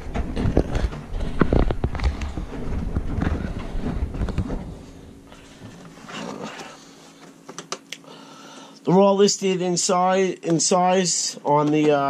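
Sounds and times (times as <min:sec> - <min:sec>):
washing machine rumbling: 0:00.0 - 0:07.0.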